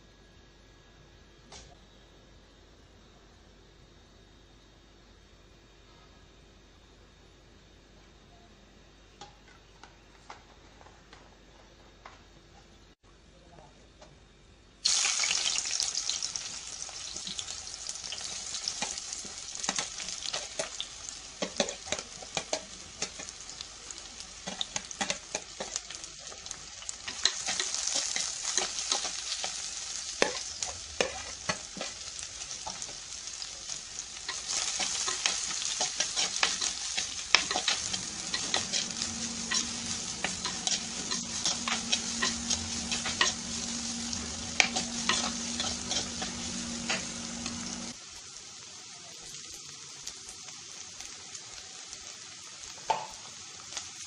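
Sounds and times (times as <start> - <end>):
onions sizzling in hot oil: 14.8 - 54.0.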